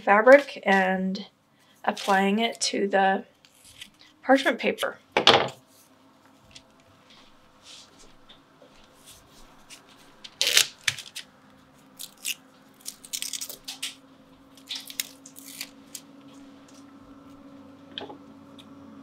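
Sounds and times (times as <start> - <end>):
paper crinkling and rustling: 8.8 - 14.0.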